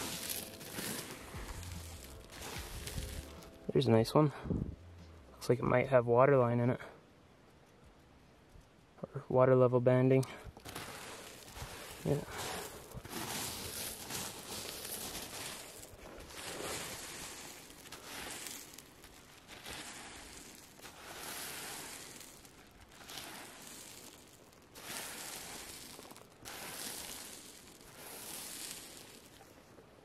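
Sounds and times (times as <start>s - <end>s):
hand raking through gravel: 0.0s - 3.9s, 10.1s - 30.0s.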